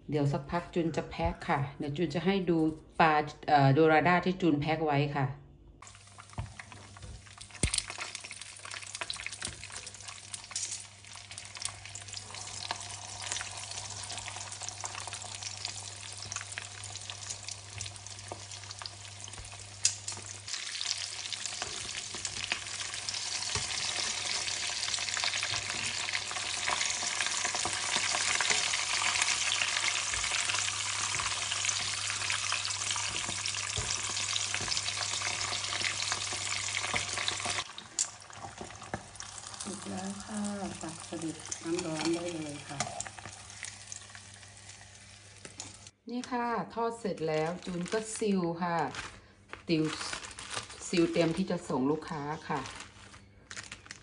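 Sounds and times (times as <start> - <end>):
hot oil sizzling: 5.8 - 46.0.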